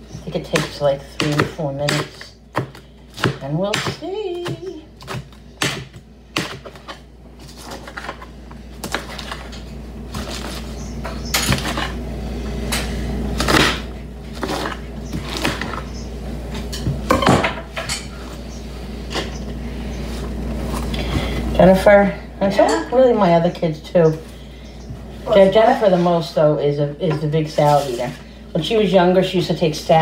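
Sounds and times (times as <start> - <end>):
knife chopping on cutting board: 0.4 - 7.0.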